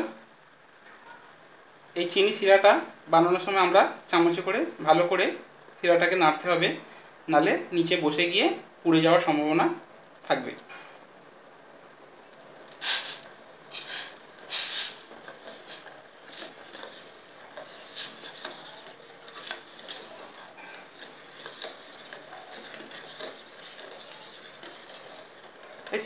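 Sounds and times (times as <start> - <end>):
spoon scraping sugar in metal bowl: 13.0 - 26.0.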